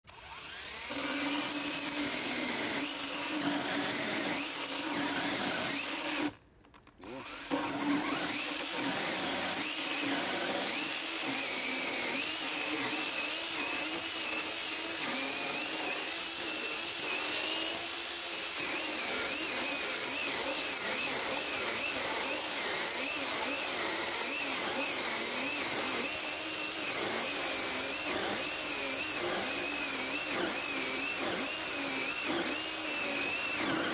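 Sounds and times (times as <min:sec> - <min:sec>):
electric chainsaw cutting wood: 0:00.1 - 0:33.9.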